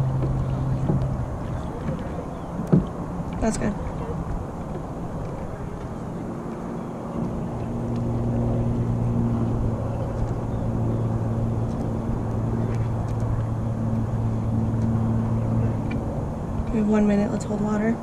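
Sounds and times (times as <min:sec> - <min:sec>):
low motor hum: 0:00.0 - 0:18.0
wind and water noise: 0:00.0 - 0:18.0.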